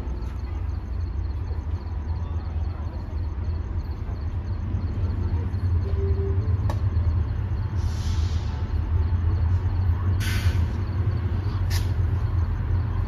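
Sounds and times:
train low rumble: 0:00.0 - 0:13.0
air hissing: 0:07.8 - 0:08.7, 0:10.2 - 0:10.7.

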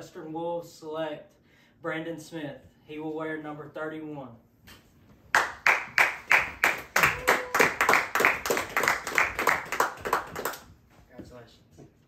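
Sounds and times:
hand clapping: 0:05.3 - 0:10.7.

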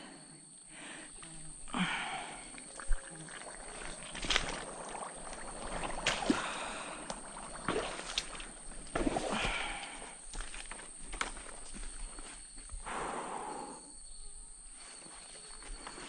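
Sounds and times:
footsteps squelching through mud: 0:01.1 - 0:12.8.

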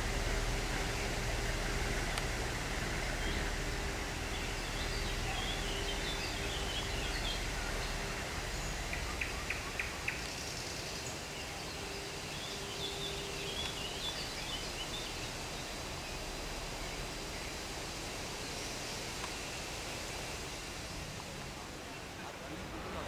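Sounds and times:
diesel locomotive rumbling: 0:00.0 - 0:23.0
small birds chirping: 0:02.9 - 0:21.0.

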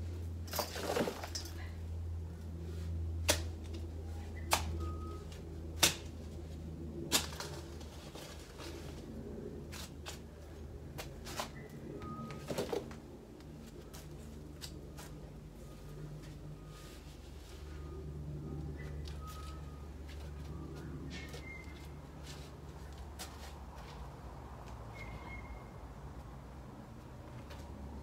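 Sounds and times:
rustling and scraping of soil: 0:00.0 - 0:04.5, 0:05.2 - 0:25.2
low steady hum: 0:00.0 - 0:28.0.

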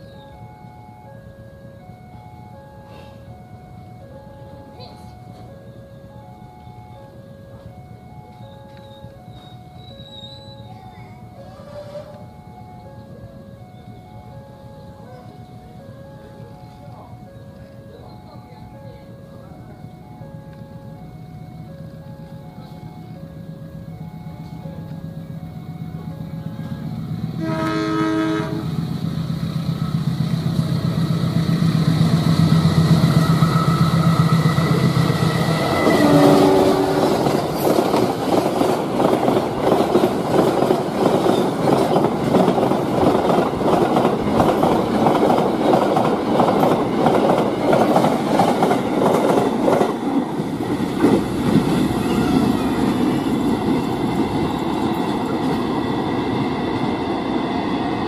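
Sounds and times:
low diesel engine hum: 0:11.4 - 0:39.7
locomotive horn blast: 0:26.6 - 0:28.8, 0:32.7 - 0:37.4
train wheels clacking on rails: 0:28.4 - 0:58.0.

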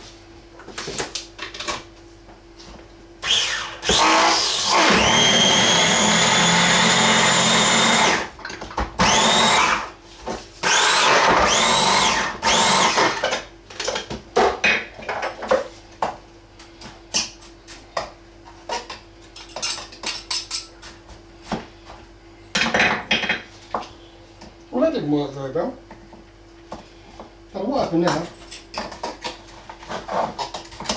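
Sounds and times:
food chopper motor whine: 0:03.2 - 0:08.3, 0:09.0 - 0:10.0, 0:10.6 - 0:13.4.

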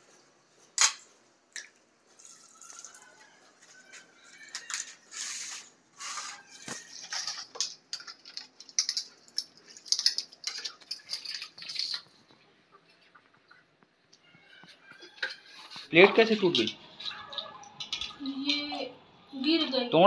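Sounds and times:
scrubbing dishes: 0:03.6 - 0:18.9.

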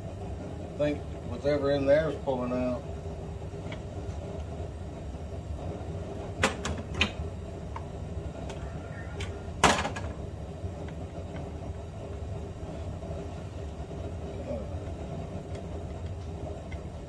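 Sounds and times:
steady low hum: 0:00.0 - 0:17.0
knocks and clicks of tools: 0:06.4 - 0:08.6.

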